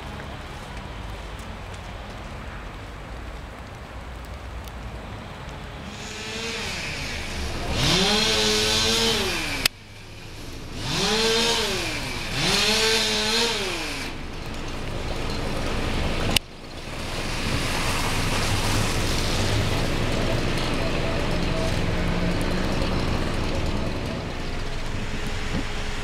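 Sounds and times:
low outdoor rumble: 0:00.0 - 0:26.0
chainsaw revving: 0:05.9 - 0:26.0.

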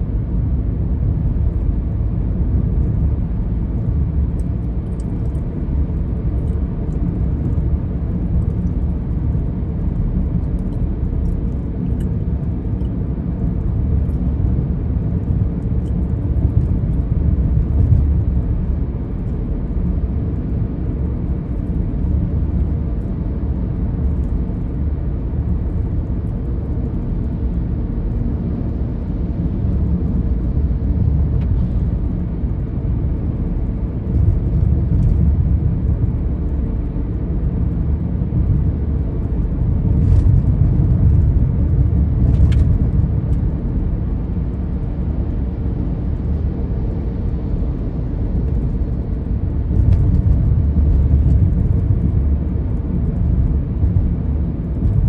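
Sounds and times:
car engine and tyre noise: 0:00.0 - 0:55.0.

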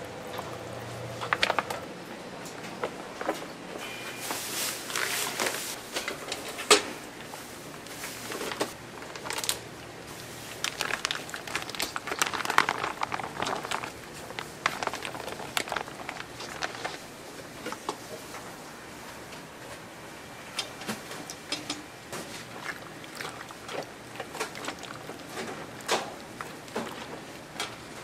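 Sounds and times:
plastic bags crinkling: 0:04.5 - 0:05.8, 0:08.2 - 0:17.0.

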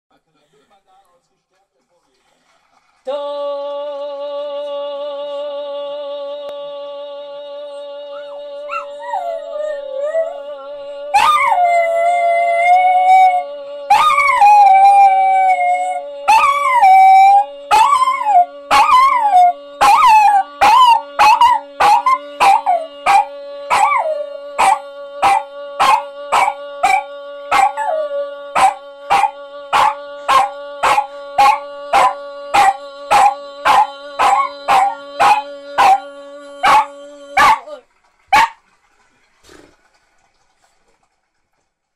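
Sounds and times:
small dog howling and yipping: 0:11.2 - 0:15.7, 0:16.3 - 0:28.0, 0:28.6 - 0:36.0, 0:36.6 - 0:37.8
dog barking: 0:24.6 - 0:27.8, 0:28.6 - 0:36.0, 0:36.6 - 0:37.7, 0:38.3 - 0:38.6.

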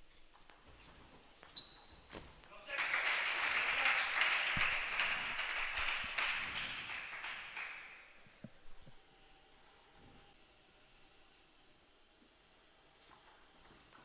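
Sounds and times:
spectators applauding: 0:02.6 - 0:08.2.

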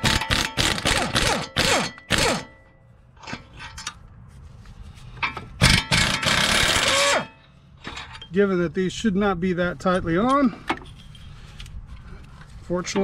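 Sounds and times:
impact wrench hammering: 0:00.0 - 0:02.6.

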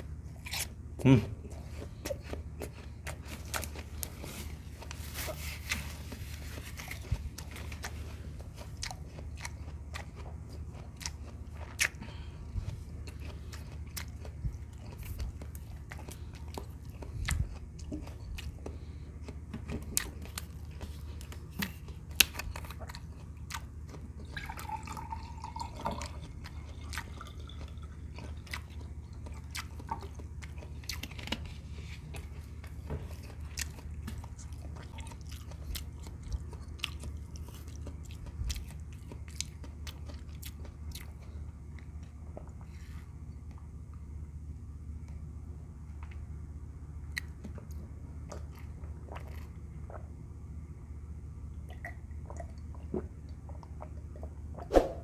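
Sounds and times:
chewing and mouth clicks: 0:00.0 - 0:44.0, 0:47.0 - 0:50.2, 0:51.6 - 0:54.7
water pouring into glass: 0:24.4 - 0:26.2
low hum: 0:49.6 - 0:55.0.

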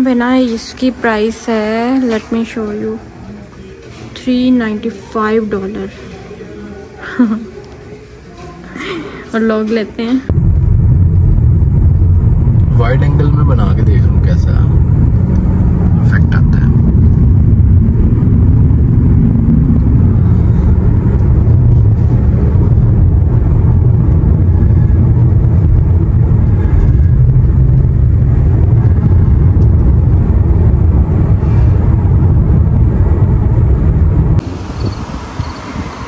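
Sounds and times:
road and engine rumble in car: 0:10.3 - 0:36.0.

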